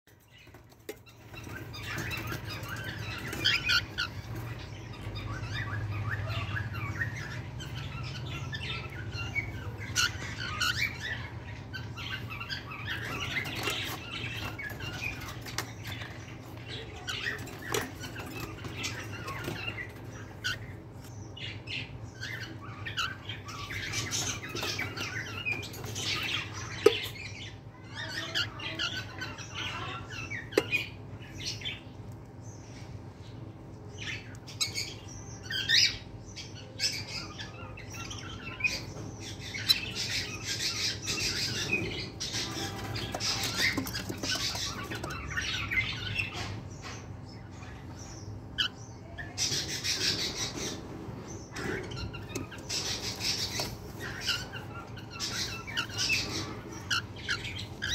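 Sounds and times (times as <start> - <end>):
cockatiels chirping and squawking: 0.1 - 57.9.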